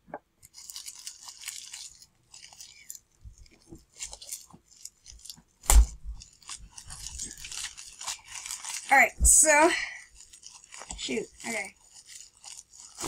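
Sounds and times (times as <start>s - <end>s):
package crinkling and tearing: 0.4s - 13.0s
loud thump: 5.7s - 6.1s.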